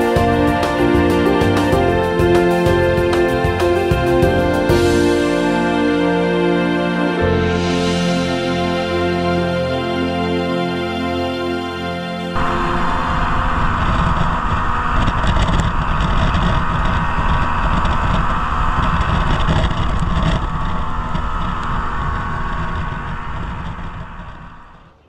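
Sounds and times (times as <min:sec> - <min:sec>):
boat motor running: 0:00.0 - 0:25.0
wind buffeting microphone: 0:12.3 - 0:25.0.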